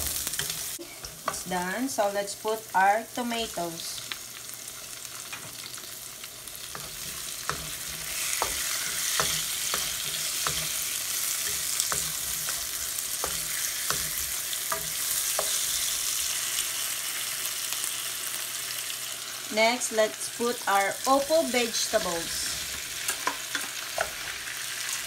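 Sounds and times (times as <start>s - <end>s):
food sizzling in a frying pan: 0.0s - 25.0s
utensil scraping a pan: 6.7s - 16.0s.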